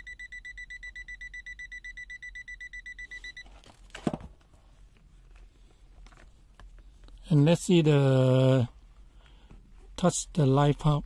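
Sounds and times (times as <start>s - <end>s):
rapid high alarm beeps: 0.0s - 3.5s.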